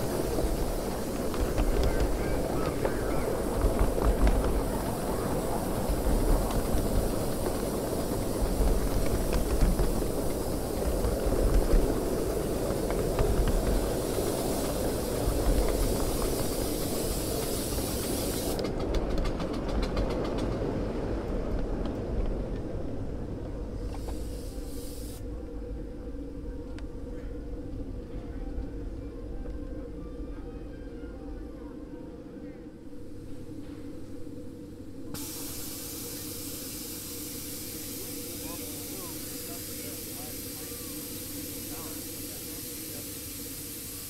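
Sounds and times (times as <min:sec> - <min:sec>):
steam hissing: 0:00.0 - 0:19.0, 0:23.8 - 0:25.4, 0:33.0 - 0:44.0
wheels rumbling on rail: 0:00.0 - 0:44.0.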